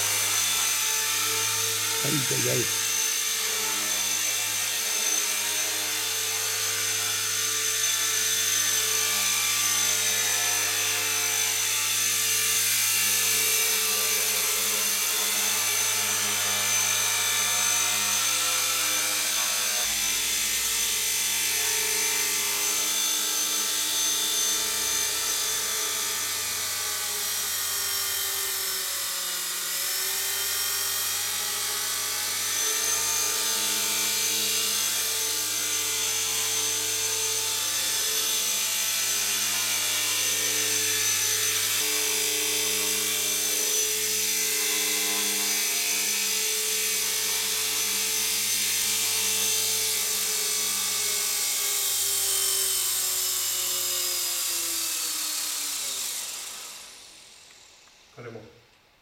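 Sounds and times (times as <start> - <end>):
rc helicopter motor whine: 0.0 - 58.4
rotor whirr: 51.9 - 58.1.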